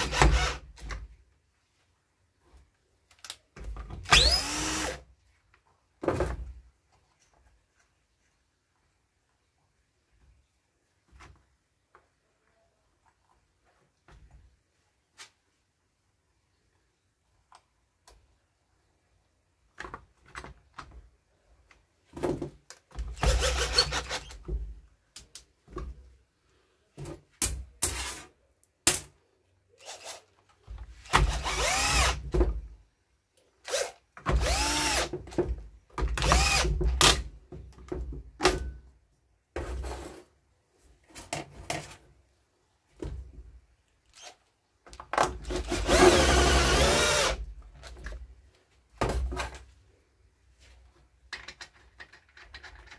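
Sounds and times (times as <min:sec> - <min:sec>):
cordless drill driving screws: 0:00.0 - 0:00.6, 0:04.1 - 0:05.0, 0:23.2 - 0:24.4, 0:29.8 - 0:30.2, 0:31.0 - 0:32.2, 0:33.6 - 0:35.1, 0:36.2 - 0:37.2, 0:45.6 - 0:47.4.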